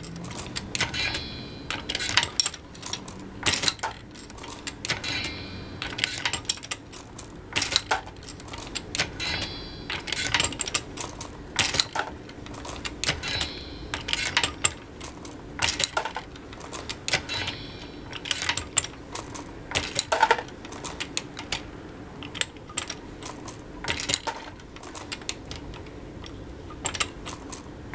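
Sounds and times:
reloading press metal clicks: 0.0 - 21.6, 22.2 - 27.7
ringing metallic clink: 0.7 - 2.7, 3.5 - 6.9, 7.6 - 12.0, 13.0 - 14.9, 17.1 - 19.0.

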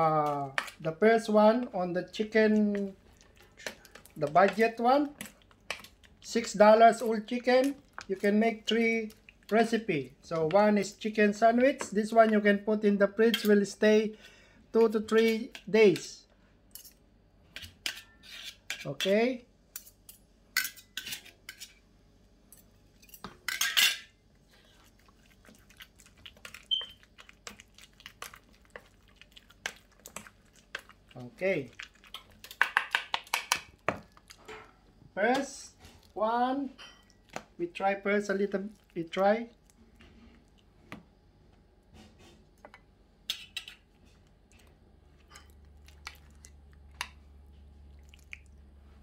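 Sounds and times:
spoon stirring in metal bowl: 0.0 - 10.8, 16.8 - 19.2, 23.0 - 41.0, 41.9 - 48.4.

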